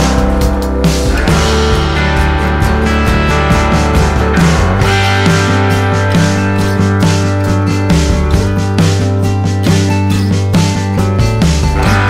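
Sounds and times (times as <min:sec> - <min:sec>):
rock music with guitars: 0:00.0 - 0:12.0.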